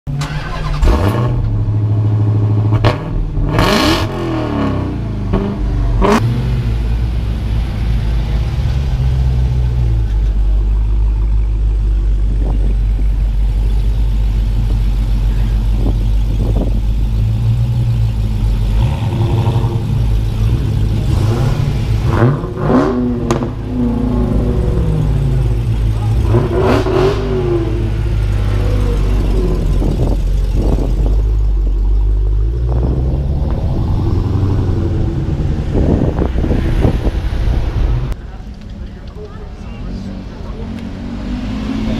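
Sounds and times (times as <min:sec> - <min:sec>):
engine revving: 0:00.1 - 0:10.3, 0:15.2 - 0:38.2, 0:39.8 - 0:41.9
car engine idling: 0:00.1 - 0:41.9.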